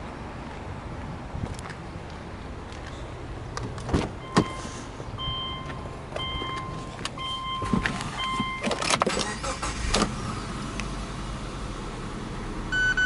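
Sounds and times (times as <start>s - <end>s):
electronic warning chime beeping: 12.7s - 13.0s.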